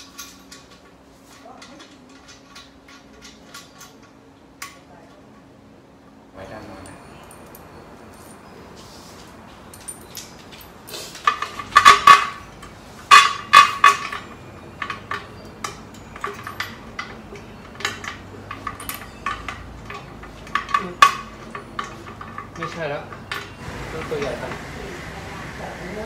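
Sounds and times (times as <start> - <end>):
metal parts clinking and tapping: 0.0 - 5.5, 6.6 - 8.8, 9.4 - 24.6.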